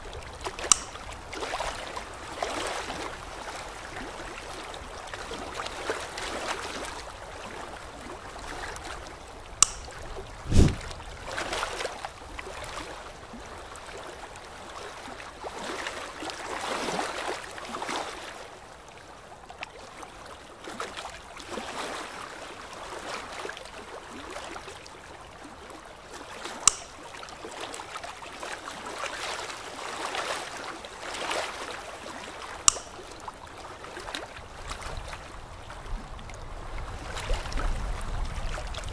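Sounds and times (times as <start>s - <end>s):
sharp clicks: 0.7s - 1.0s, 9.6s - 9.9s, 26.7s - 27.0s, 32.7s - 33.0s
low thump: 10.5s - 10.9s.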